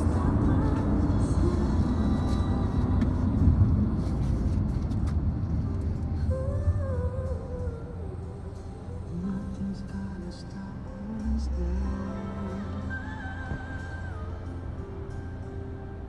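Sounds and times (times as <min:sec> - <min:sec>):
car road and engine rumble: 0:00.0 - 0:16.0.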